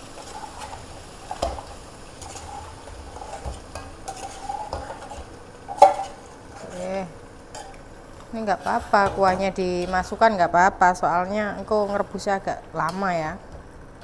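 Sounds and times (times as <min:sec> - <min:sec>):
spice paste sizzling: 0:00.0 - 0:14.0
metal spoon scraping a pot: 0:02.2 - 0:07.8, 0:08.5 - 0:10.3.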